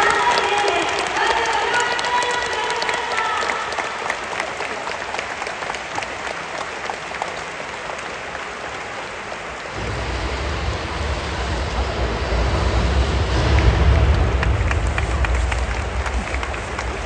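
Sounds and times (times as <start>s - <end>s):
crowd applauding: 0.0s - 17.0s
low rumble: 9.7s - 17.0s.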